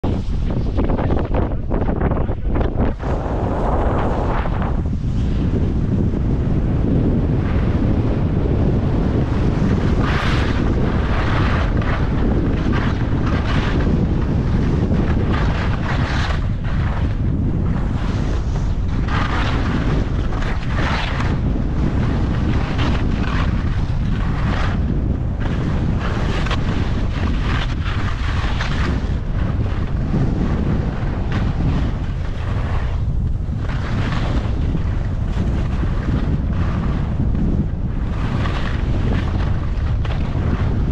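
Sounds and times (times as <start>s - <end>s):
wind buffeting microphone: 0.0s - 40.9s
ski edges scraping snow: 9.2s - 33.0s, 33.6s - 40.9s.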